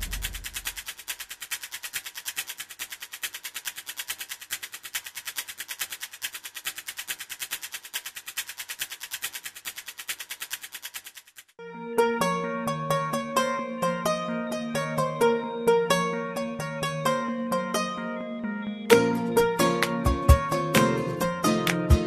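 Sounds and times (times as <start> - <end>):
fast ticking clicks: 0.0 - 11.6.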